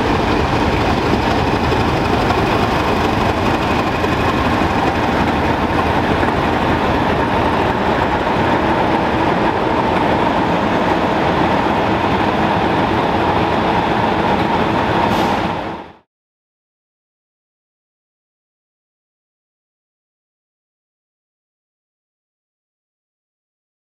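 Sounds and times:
diesel locomotive engine running: 0.0 - 16.1.

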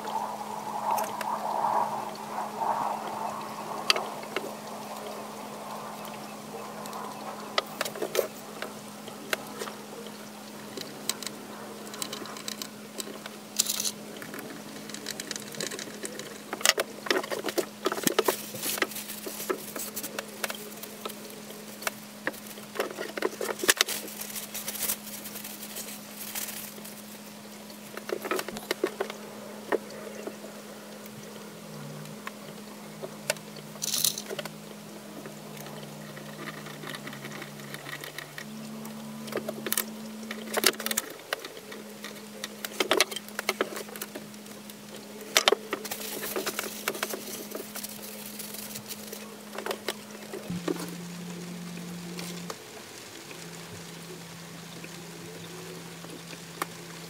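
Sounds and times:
steady low hum: 0.0 - 57.0
wooden parts tapping and scraping: 11.9 - 27.1, 45.2 - 50.8.

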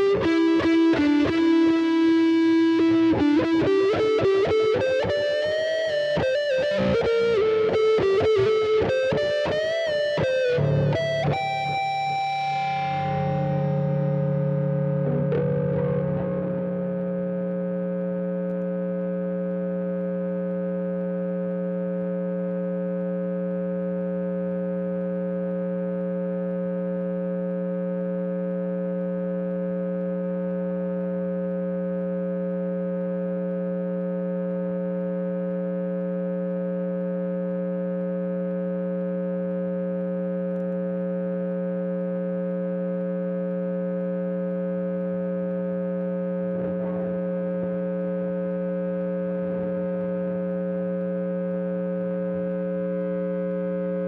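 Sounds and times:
electric guitar amplifier hum: 0.0 - 54.0.

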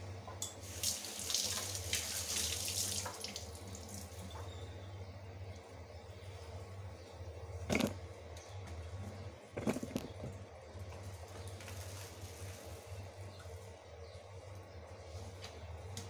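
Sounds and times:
steady low hum: 3.5 - 16.0.

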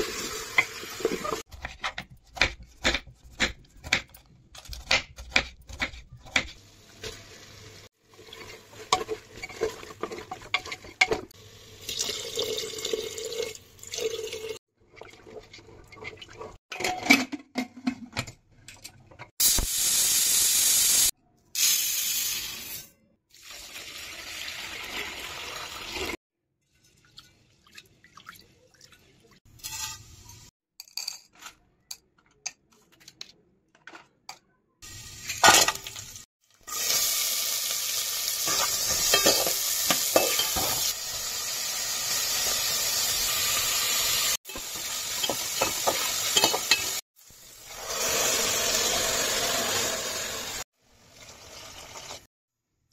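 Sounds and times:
pressure cooker steam hiss: 19.4 - 22.8, 36.7 - 50.6.

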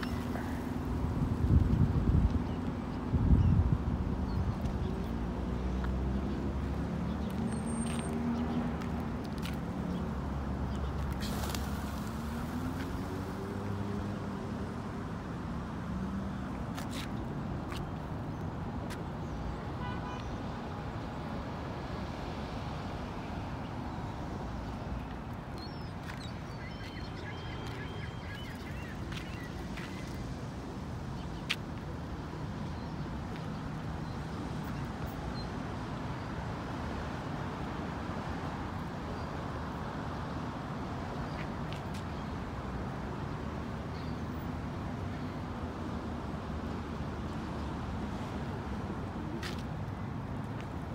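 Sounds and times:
city road traffic: 0.0 - 50.9.

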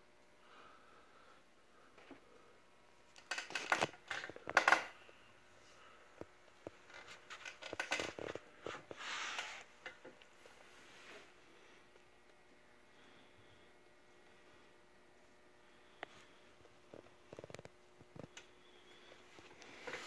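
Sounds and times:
metal clicks and rattles: 3.2 - 5.0, 6.9 - 8.4.

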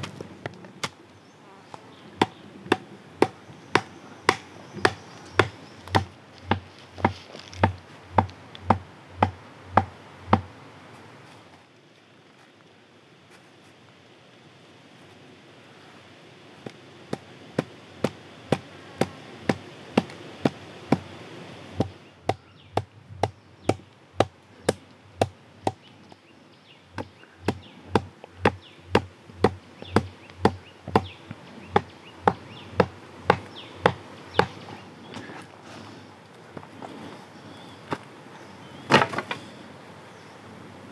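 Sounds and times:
wooden mallet knocking stakes: 2.2 - 10.5, 16.6 - 21.1, 21.8 - 25.8, 26.9 - 31.1, 31.7 - 34.6.

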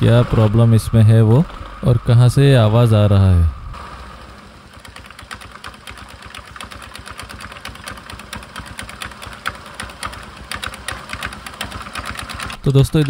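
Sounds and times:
scooter engine running: 0.0 - 13.0
drive belt clicking and clattering: 3.8 - 13.0.

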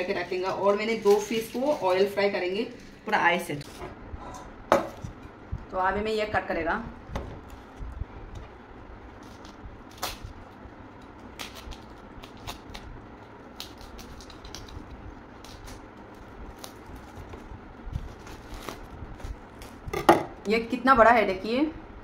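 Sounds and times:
cling film crinkling: 0.0 - 3.8, 7.4 - 19.9.

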